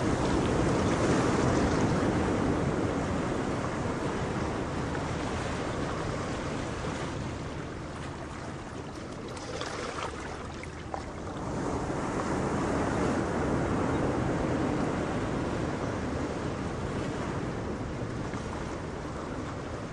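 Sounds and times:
ocean surf rushing: 0:02.1 - 0:15.4.

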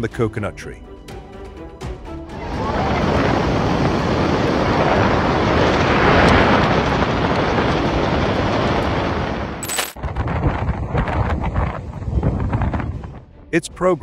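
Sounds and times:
strong wind through palm trees: 0:02.3 - 0:13.2.

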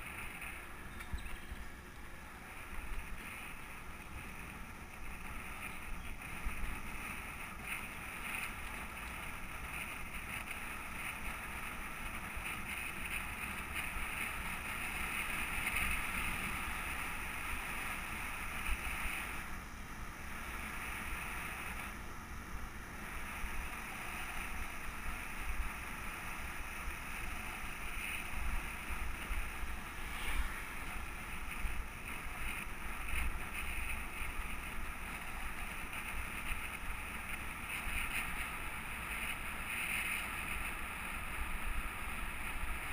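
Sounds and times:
bicycle tyres rolling on asphalt: 0:00.0 - 0:42.9
wind on microphone: 0:23.4 - 0:42.9.

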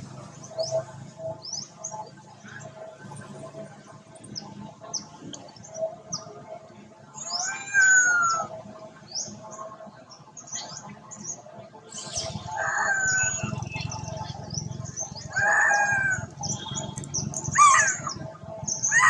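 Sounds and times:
birds chirping: 0:00.0 - 0:19.0
long gliding bird calls: 0:07.1 - 0:09.8, 0:11.9 - 0:19.0.

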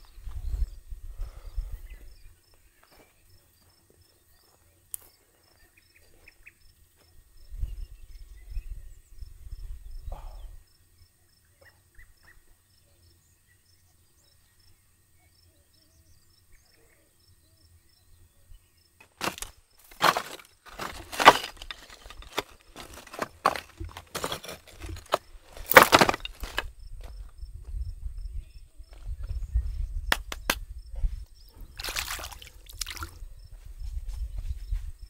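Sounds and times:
wind rumble on microphone: 0:00.0 - 0:02.3, 0:07.3 - 0:10.6, 0:26.6 - 0:31.8, 0:33.0 - 0:35.0
cricket chirping: 0:00.0 - 0:35.0.

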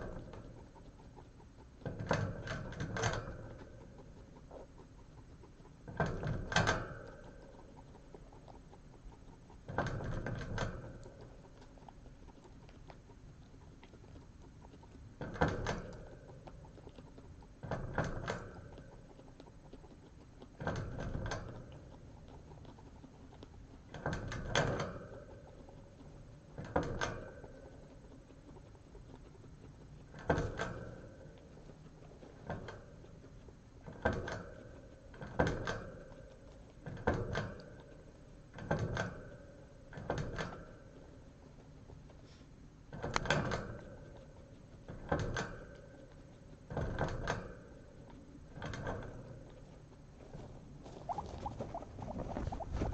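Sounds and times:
air glugging in bottle: 0:50.9 - 0:52.9.

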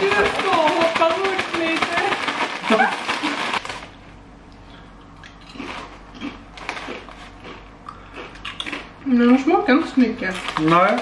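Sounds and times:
crisps being chewed: 0:05.0 - 0:11.0.

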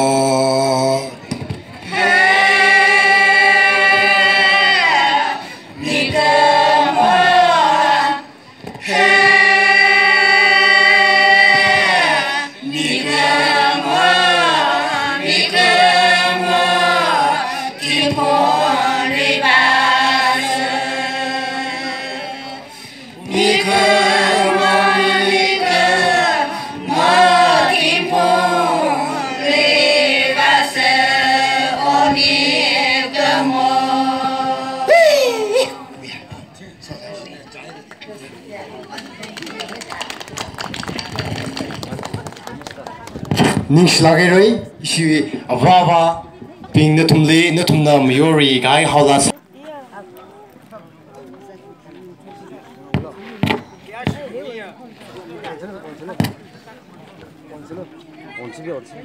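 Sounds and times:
women singing unaccompanied: 0:01.8 - 0:35.8.

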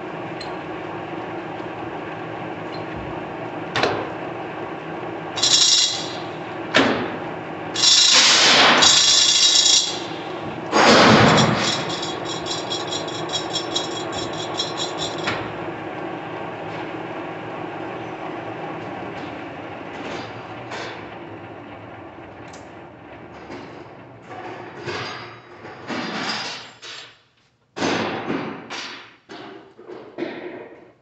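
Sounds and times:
lathe humming: 0:07.8 - 0:16.4.

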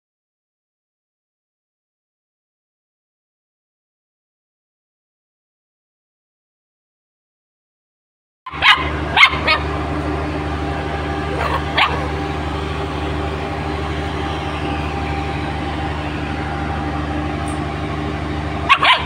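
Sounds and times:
puppy barking: 0:08.5 - 0:09.8, 0:11.3 - 0:12.2, 0:18.6 - 0:19.0
low machine hum: 0:08.5 - 0:19.0.

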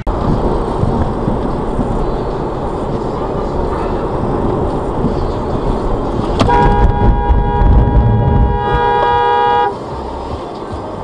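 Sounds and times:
car driving noise from inside: 0:00.1 - 0:10.6
car horn blast: 0:06.4 - 0:09.8.

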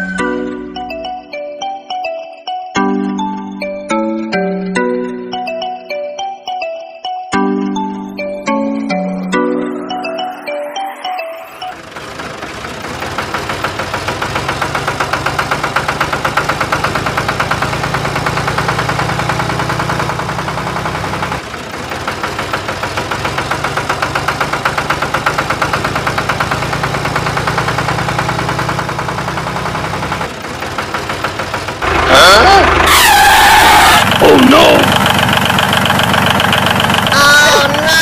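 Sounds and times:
tractor engine chugging: 0:11.6 - 0:38.0.

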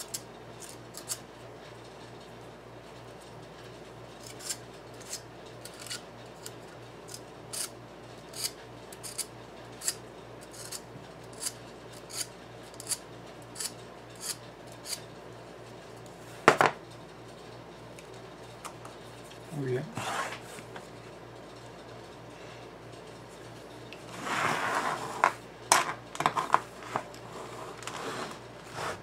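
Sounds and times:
blade scraping wire: 0:00.0 - 0:01.2, 0:04.2 - 0:15.1.

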